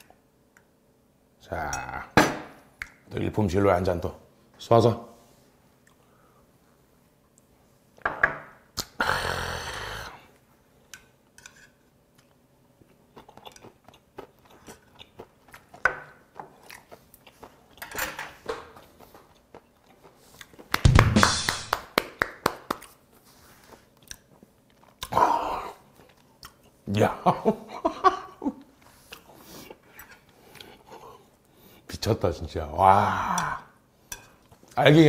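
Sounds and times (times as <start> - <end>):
chewing with wet clicks: 12.1 - 15.8, 16.6 - 18.0, 18.8 - 20.8, 23.9 - 25.1, 26.0 - 26.8.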